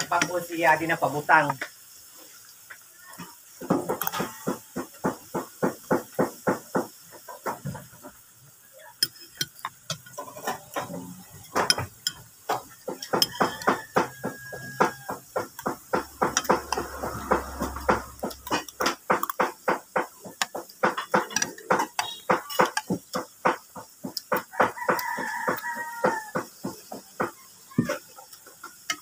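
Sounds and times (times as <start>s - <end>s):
spoon and fork clinking on plate: 9.0s - 15.0s.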